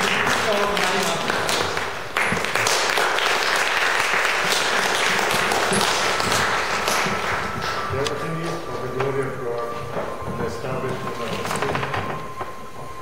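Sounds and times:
audience applauding: 0.0 - 8.7.

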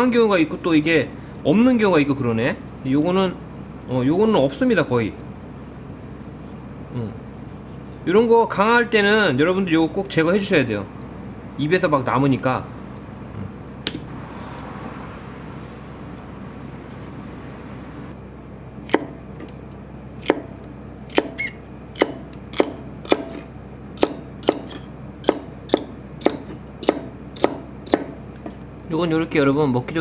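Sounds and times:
steady low hum: 0.0 - 30.0
knife chopping on cutting board: 18.8 - 19.5, 20.2 - 21.4, 22.0 - 28.5.

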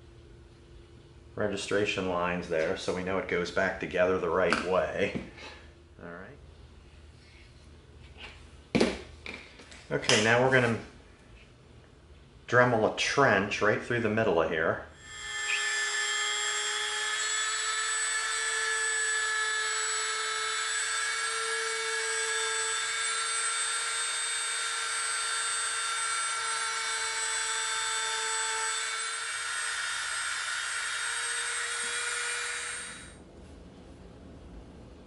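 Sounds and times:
rotary tool high-pitched whine: 15.0 - 33.2.

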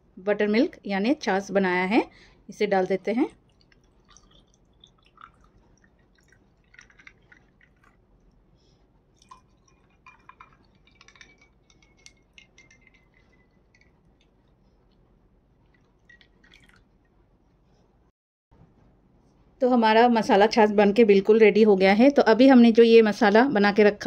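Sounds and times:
liquid pouring into glasses: 2.8 - 8.3, 9.2 - 14.6, 15.7 - 17.1
clicks and drips against glass: 2.8 - 8.5, 9.2 - 15.0, 15.6 - 17.2.

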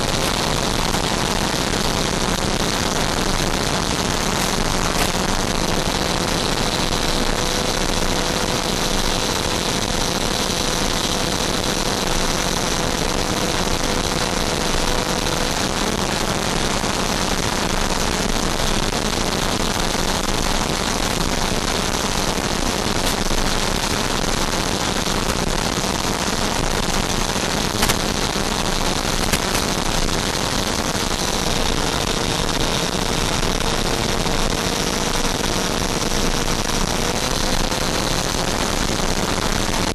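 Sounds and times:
ducted fan and airflow rush: 0.0 - 10.6, 19.8 - 35.8.

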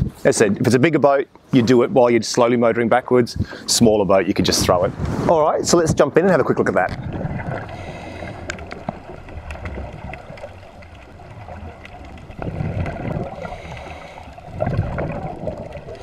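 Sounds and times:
underwater bubbles gurgling: 6.6 - 16.0.

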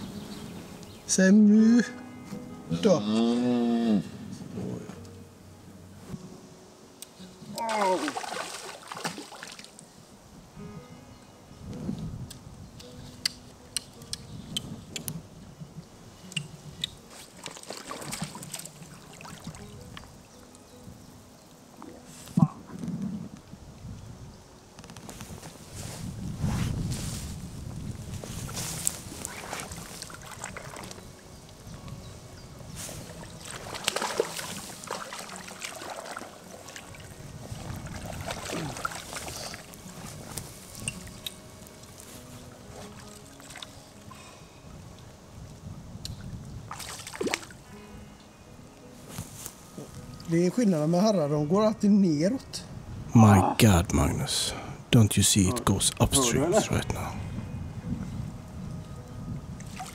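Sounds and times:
river water splashing: 7.4 - 9.9, 16.9 - 20.6, 29.0 - 31.6, 32.9 - 44.3, 46.7 - 47.9, 59.6 - 59.9.

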